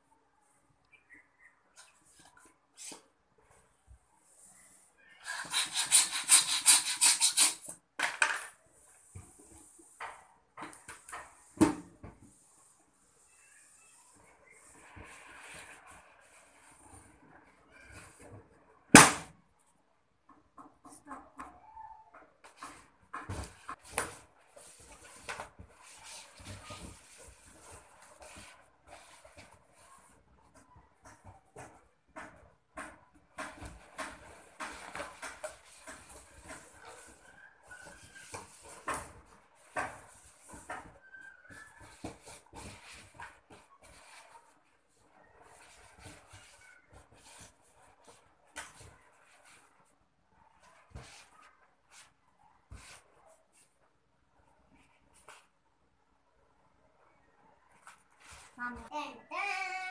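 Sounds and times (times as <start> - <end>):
balloons rubbing and squeaking: 4.5 - 7.8, 12.2 - 18.4, 33.7 - 52.2
hand pump air puffs: 5.2 - 7.8
rubbing of balloon: 5.2 - 7.8.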